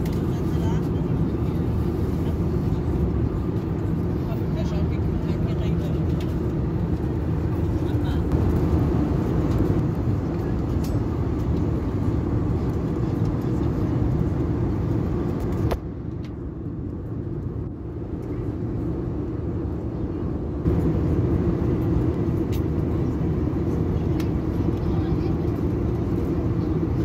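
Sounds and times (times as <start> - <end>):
airliner cabin noise: 0.0 - 27.0.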